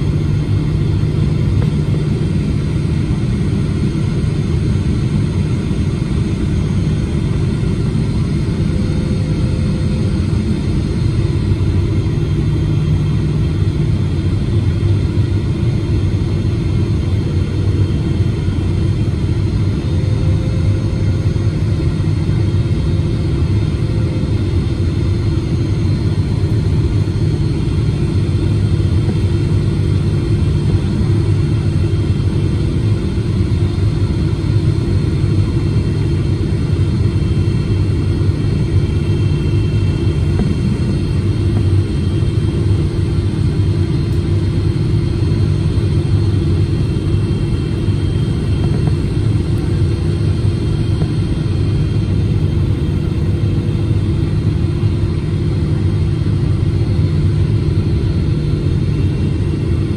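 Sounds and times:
airliner cabin rumble: 0.0s - 59.9s
steady hums: 0.0s - 59.9s.

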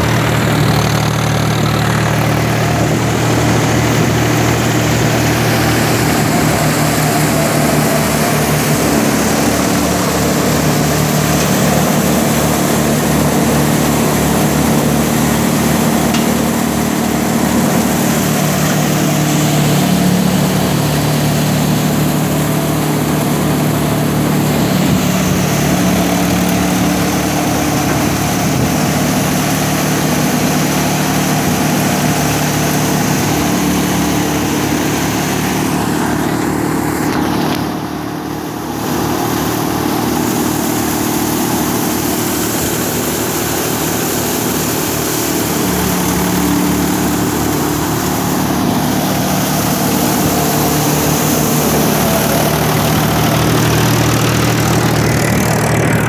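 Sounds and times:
tractor engine running: 0.0s - 56.0s.

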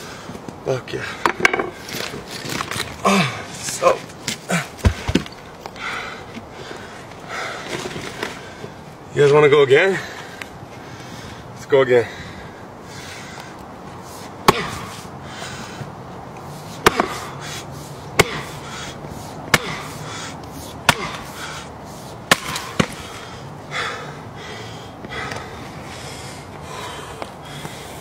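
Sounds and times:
axe chopping wood: 4.8s - 5.3s, 14.5s - 14.9s, 16.8s - 17.3s, 18.2s - 18.6s, 19.5s - 19.9s, 20.8s - 21.4s, 22.2s - 23.0s.

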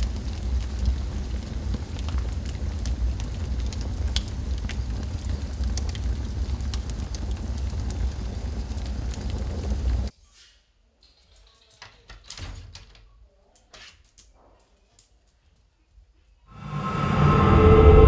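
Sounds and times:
crackles and pops: 0.0s - 10.1s
low rumble: 16.5s - 18.0s.

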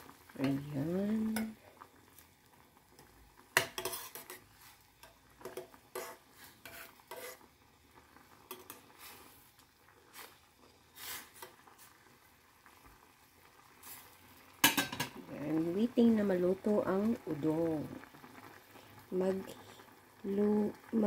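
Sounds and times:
metal ladle scraping a saucepan: 3.6s - 4.8s, 5.4s - 7.5s.

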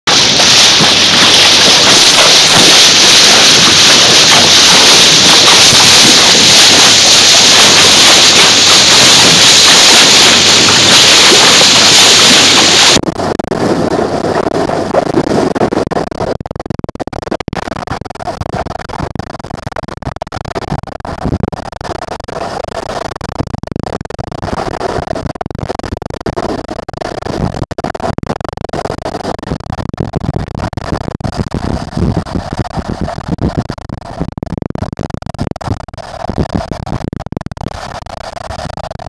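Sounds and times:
water splashing: 0.1s - 13.0s.

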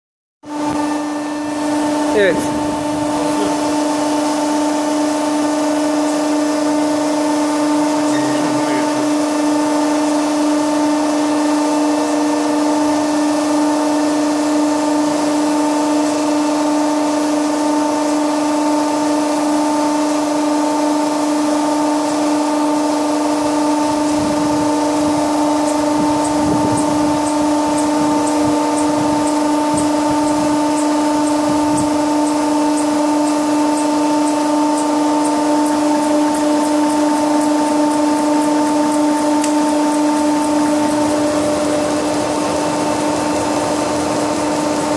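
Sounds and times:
hydraulic test rig humming: 0.4s - 44.9s.

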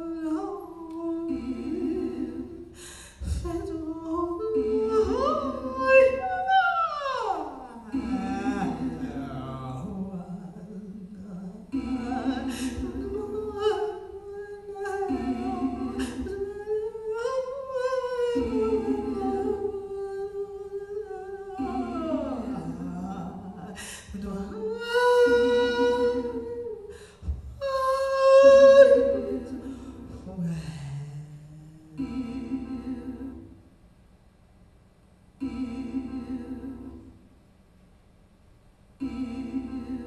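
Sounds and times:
woman singing wordless notes: 0.0s - 33.6s, 35.4s - 37.2s, 39.0s - 40.0s
electronic backing chord: 7.9s - 10.0s, 11.7s - 13.7s, 15.0s - 16.5s, 32.0s - 33.6s, 35.4s - 37.3s, 39.0s - 40.0s.

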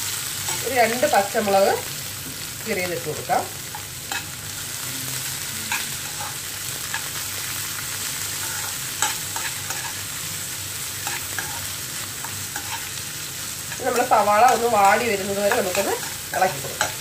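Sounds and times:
vegetables sizzling in hot oil: 0.0s - 17.0s
steel spoon scraping pan: 11.0s - 13.0s.

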